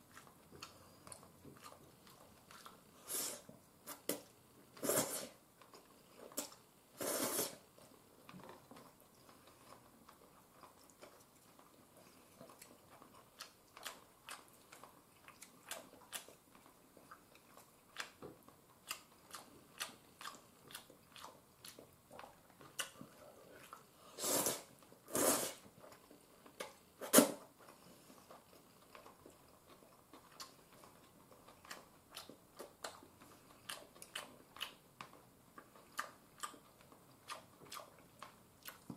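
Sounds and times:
person chewing: 0:00.0 - 0:38.9
slurping noodles: 0:07.0 - 0:07.6, 0:24.1 - 0:25.6.

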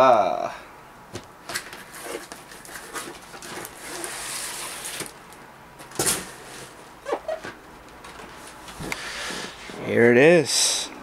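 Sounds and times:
cardboard rustling: 0:01.4 - 0:07.6
cardboard scraping on cardboard: 0:01.7 - 0:05.1.

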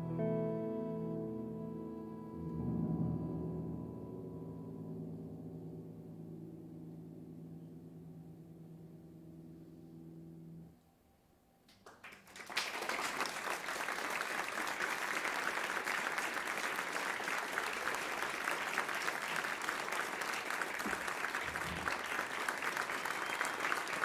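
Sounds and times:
audience applause: 0:11.8 - 0:24.0.

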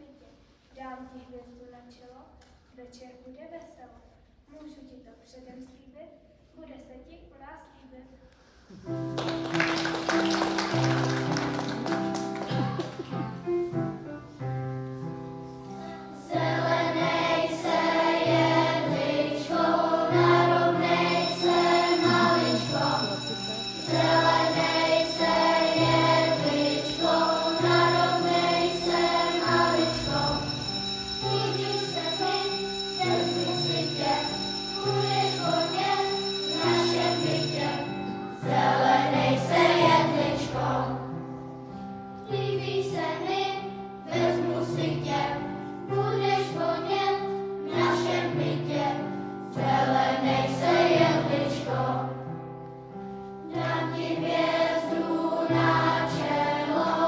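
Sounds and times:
instrumental accompaniment: 0:08.8 - 0:40.4
children's choir singing: 0:09.2 - 0:13.7, 0:15.4 - 0:41.3, 0:42.3 - 0:52.4, 0:53.4 - 0:57.0.

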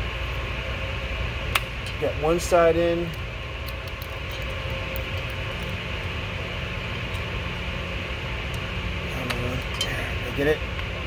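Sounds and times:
mechanical hum: 0:00.0 - 0:11.0.

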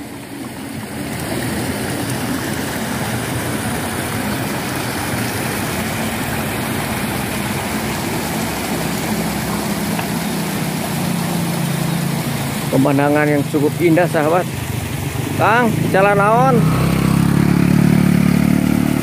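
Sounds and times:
broad rushing noise: 0:00.0 - 0:19.0
small engine running: 0:01.2 - 0:19.0.

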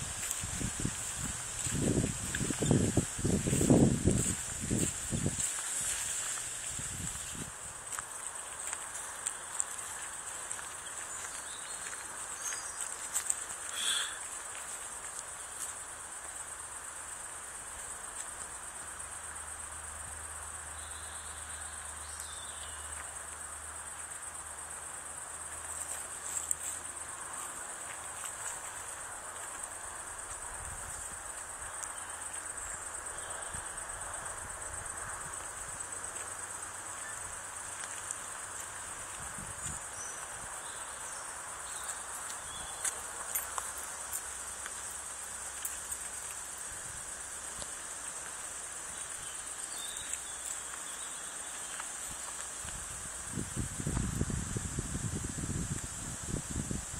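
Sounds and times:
insects trilling: 0:00.0 - 0:56.9.

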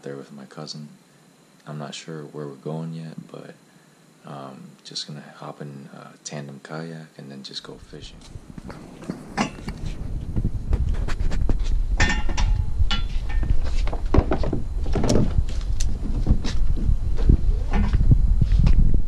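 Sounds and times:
low rumble: 0:07.8 - 0:19.0.

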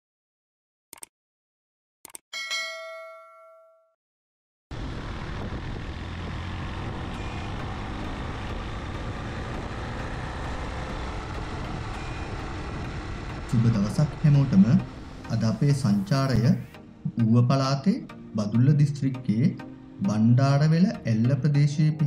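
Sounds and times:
click: 0:00.9 - 0:01.1, 0:02.0 - 0:02.2
notification ding: 0:02.4 - 0:03.9
vehicle road and wind noise: 0:04.7 - 0:16.7.

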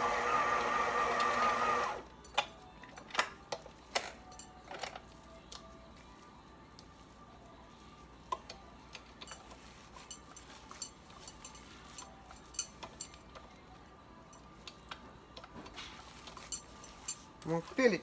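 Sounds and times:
metal bangles clinking: 0:04.0 - 0:05.0, 0:09.0 - 0:13.3, 0:16.2 - 0:17.6.

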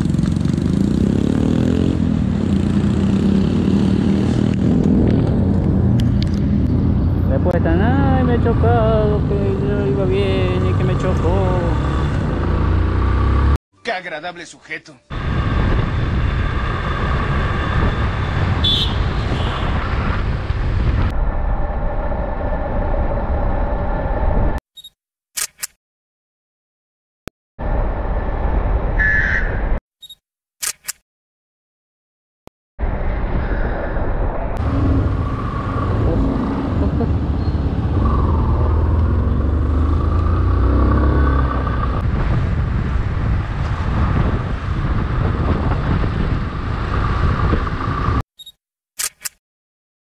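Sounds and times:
motorcycle engine revving: 0:00.0 - 0:13.6, 0:34.6 - 0:48.2
wind rumble on microphone: 0:15.1 - 0:24.6, 0:32.8 - 0:48.2.

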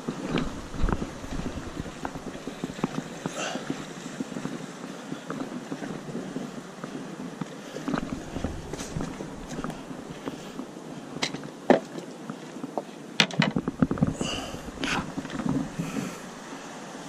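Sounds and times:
branches rustling: 0:00.0 - 0:13.0
footsteps through dry twigs: 0:07.8 - 0:10.4.

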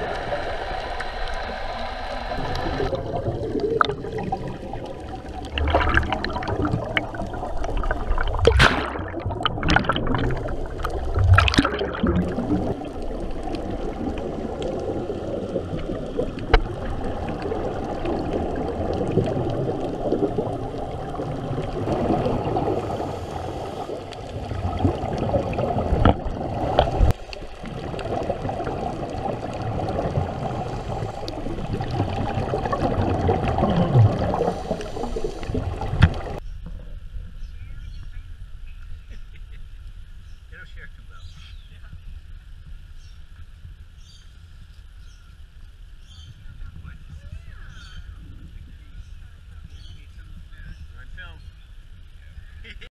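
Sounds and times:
air bubbles rising: 0:00.0 - 0:37.0
muffled underwater rumbling: 0:00.0 - 0:52.9.

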